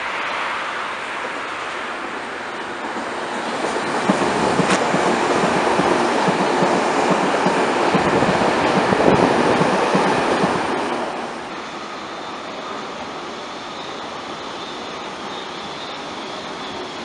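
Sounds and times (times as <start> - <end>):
subway train running past: 0.0 - 17.0
wheels knocking: 2.9 - 10.6.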